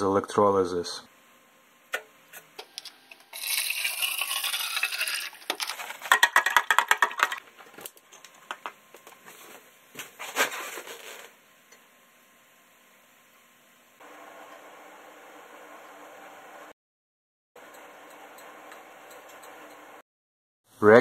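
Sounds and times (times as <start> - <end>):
metal spoon stirring and clinking: 2.8 - 7.4.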